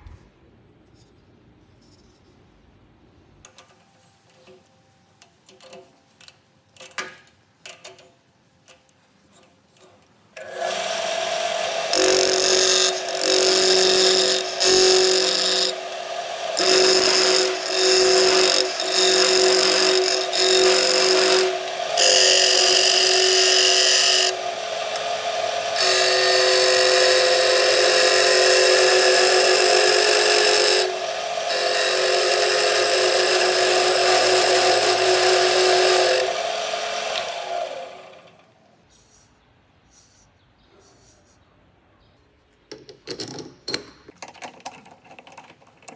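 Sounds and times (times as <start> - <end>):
wood lathe humming: 10.4 - 38.4
chisel scraping spinning wood: 16.5 - 24.4, 25.8 - 36.4.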